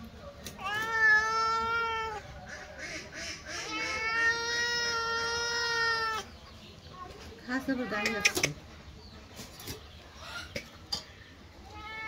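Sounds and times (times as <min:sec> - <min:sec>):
cat meowing: 0:00.6 - 0:02.3, 0:03.6 - 0:06.3, 0:11.6 - 0:12.0.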